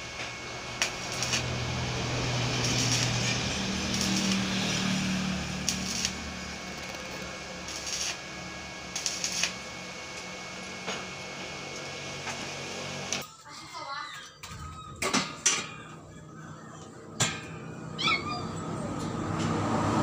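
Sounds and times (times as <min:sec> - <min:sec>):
arc welding crackling hiss: 0:00.0 - 0:13.2
low electrical hum: 0:00.0 - 0:13.2
welding bursts and taps: 0:00.0 - 0:13.2.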